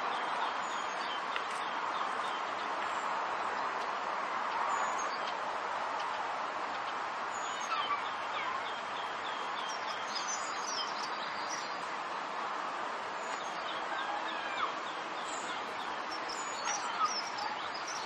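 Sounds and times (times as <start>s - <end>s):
small birds chirping: 0.0s - 12.0s, 13.1s - 18.0s.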